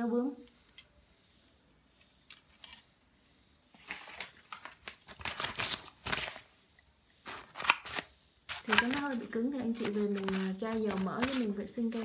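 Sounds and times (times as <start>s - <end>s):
scissors scraping paper: 7.2s - 12.0s
scissors clicking: 7.6s - 9.1s.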